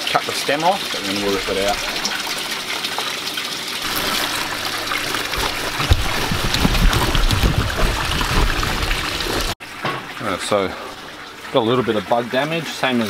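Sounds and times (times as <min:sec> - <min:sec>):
water trickling and splashing: 0:00.0 - 0:13.0
low thumps and knocks: 0:03.9 - 0:10.1.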